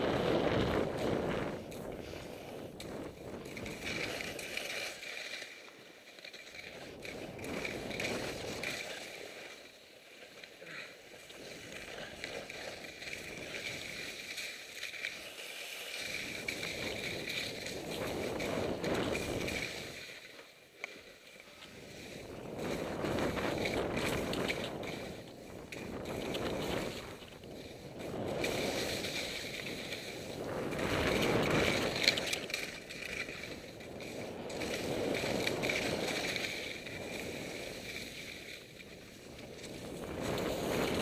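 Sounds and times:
wind over microphone: 0:00.0 - 0:05.0, 0:06.7 - 0:09.2, 0:15.9 - 0:20.2, 0:21.7 - 0:41.0
skis hissing through snow: 0:00.1 - 0:41.0.

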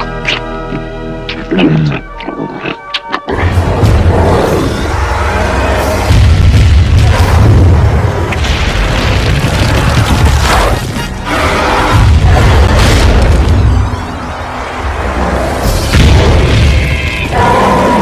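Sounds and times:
dramatic music: 0:00.0 - 0:09.2, 0:10.0 - 0:18.0.

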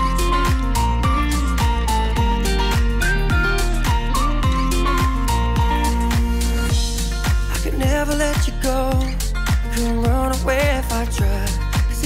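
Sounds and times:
pop music with steady beat: 0:00.0 - 0:12.0.

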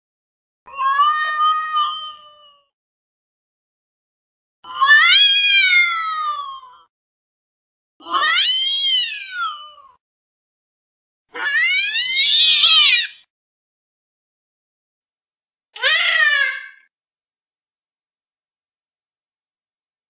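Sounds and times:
cat meowing: 0:04.7 - 0:06.9, 0:08.0 - 0:10.0, 0:11.4 - 0:13.2.

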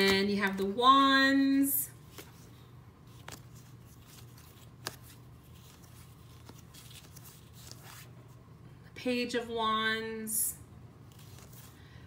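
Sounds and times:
cards being handled: 0:00.0 - 0:00.8, 0:02.0 - 0:08.4, 0:11.0 - 0:11.9
low room hum: 0:00.0 - 0:12.0.

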